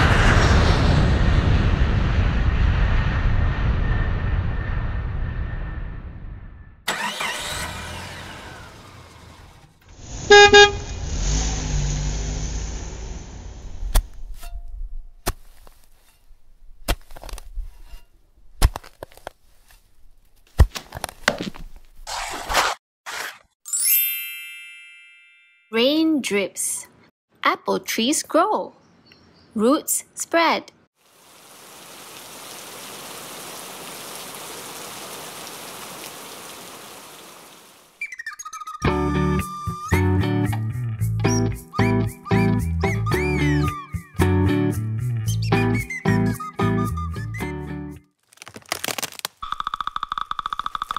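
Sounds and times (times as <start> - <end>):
pickaxe striking rock: 15.2 - 15.8
steady rain falling: 31.0 - 38.0.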